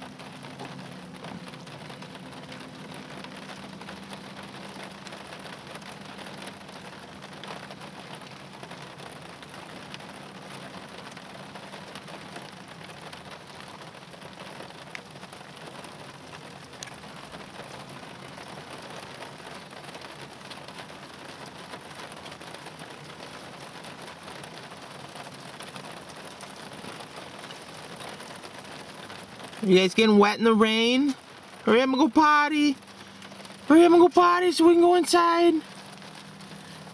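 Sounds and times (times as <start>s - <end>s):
steady rain pattering: 0.0s - 36.9s.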